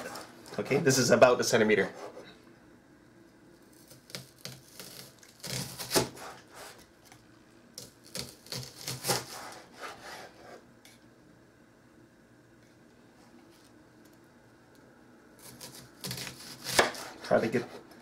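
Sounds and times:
knife slicing onion on board: 0:03.8 - 0:06.8, 0:08.1 - 0:10.6, 0:15.4 - 0:18.0.

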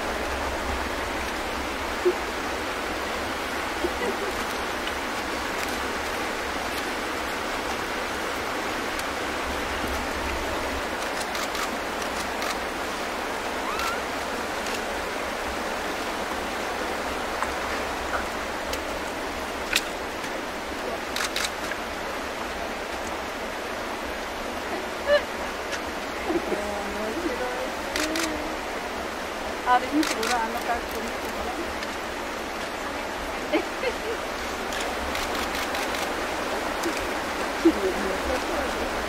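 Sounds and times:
flowing water rushing: 0:00.0 - 0:39.0.

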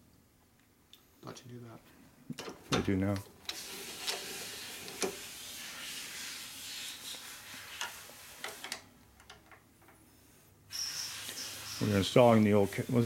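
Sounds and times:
steady hiss: 0:03.1 - 0:09.0, 0:10.0 - 0:13.0.

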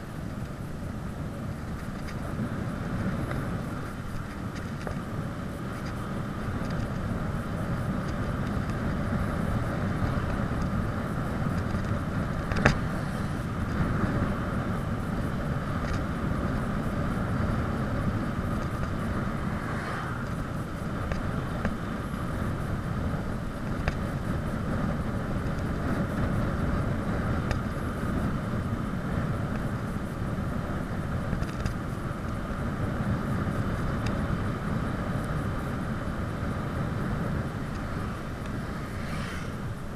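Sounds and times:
bicycle tyres on asphalt: 0:00.0 - 0:39.9
wind rushing over microphone: 0:00.0 - 0:39.9
faint ticks: 0:01.7 - 0:02.3, 0:03.0 - 0:13.0, 0:23.6 - 0:24.4, 0:27.4 - 0:28.3, 0:31.3 - 0:32.4, 0:36.7 - 0:39.8.

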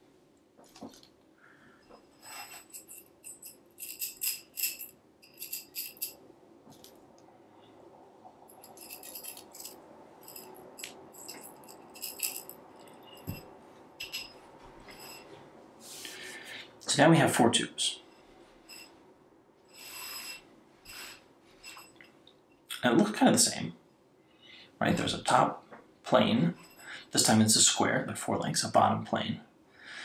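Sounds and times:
metal tubes clinking and rattling: 0:01.8 - 0:07.0, 0:08.5 - 0:15.4, 0:18.6 - 0:19.0, 0:19.7 - 0:22.3, 0:26.4 - 0:27.4.

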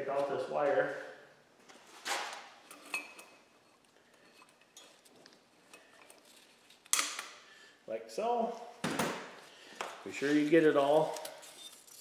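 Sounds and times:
metallic clinks and scrapes: 0:10.9 - 0:12.0.

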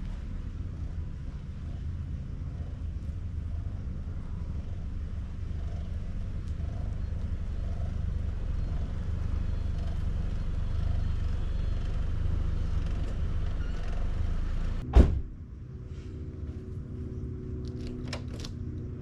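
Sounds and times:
van road rumble: 0:00.0 - 0:19.0
sharp loud thump: 0:14.8 - 0:15.4.

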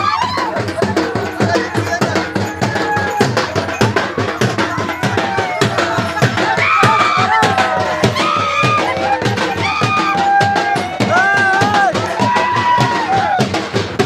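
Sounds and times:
folk drums beating: 0:00.0 - 0:14.0.

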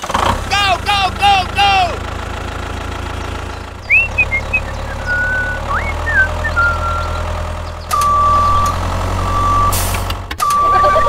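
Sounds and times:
tractor engine idling: 0:00.0 - 0:11.0
short rising chirps: 0:03.8 - 0:09.8
reversing alarm beep: 0:07.9 - 0:09.8, 0:10.4 - 0:11.0.

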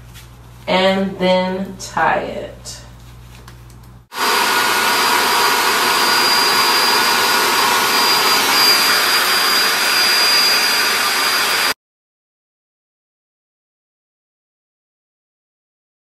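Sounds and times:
hair dryer blowing: 0:04.1 - 0:11.8.

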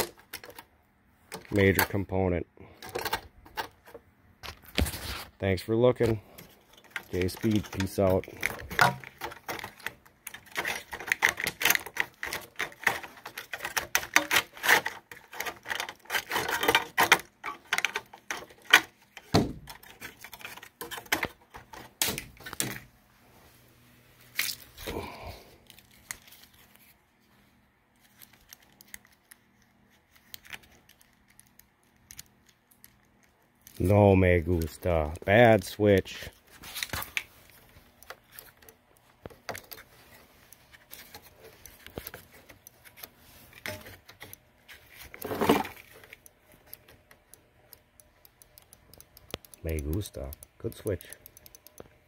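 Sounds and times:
plastic and metal clicks and rattles: 0:00.0 - 0:00.7, 0:06.0 - 0:22.8, 0:36.8 - 0:52.0.

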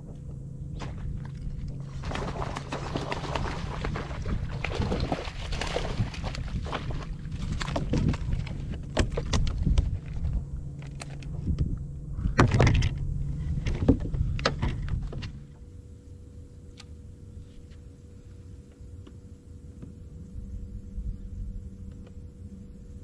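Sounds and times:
knocks and thumps on boat deck: 0:00.0 - 0:10.3, 0:11.4 - 0:12.9, 0:13.6 - 0:15.4
low steady hum: 0:00.0 - 0:23.0.

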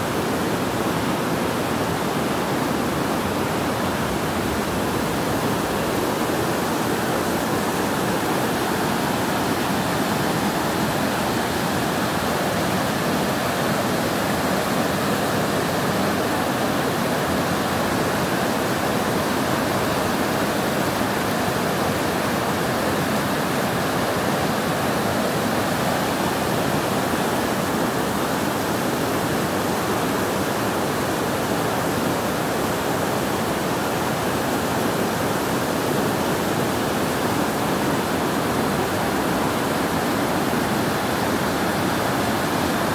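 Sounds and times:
floodwater rushing: 0:00.0 - 0:42.9.

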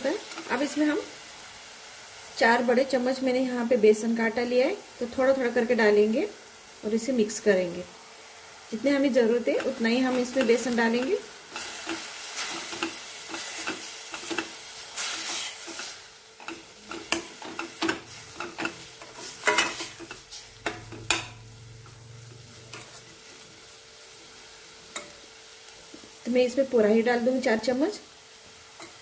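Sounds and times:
light frying sizzle: 0:00.0 - 0:29.0
metal spoon scraping a pan: 0:09.4 - 0:23.4, 0:28.7 - 0:29.0.

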